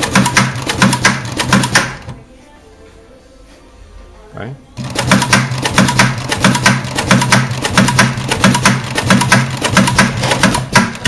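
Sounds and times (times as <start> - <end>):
sewing machine needle clatter: 4.8 - 11.0.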